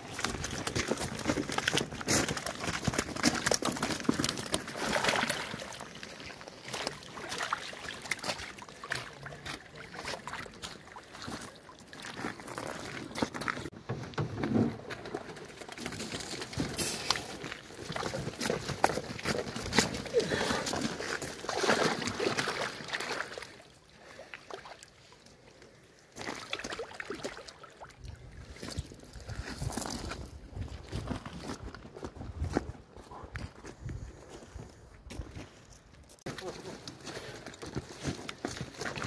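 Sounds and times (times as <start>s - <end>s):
water sloshing: 0.0s - 13.7s, 14.8s - 29.1s.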